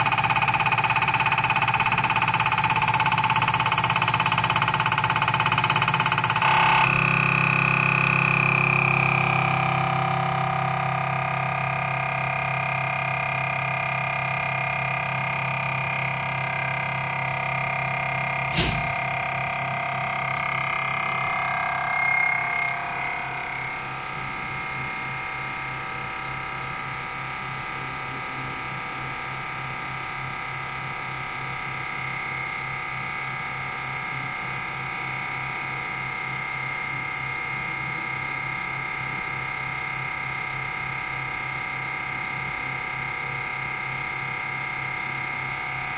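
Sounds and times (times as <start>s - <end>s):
motor and pump humming with whine: 0.0s - 45.9s
sharp click: 18.5s - 19.1s.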